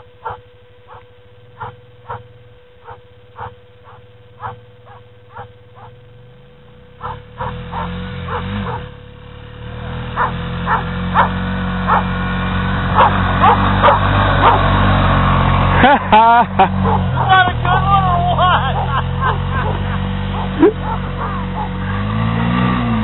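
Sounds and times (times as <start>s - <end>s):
low steady rumble: 0.0s - 23.0s
dog yipping: 0.2s - 6.0s, 7.0s - 8.9s, 10.2s - 12.1s, 13.0s - 14.6s, 18.7s - 21.9s.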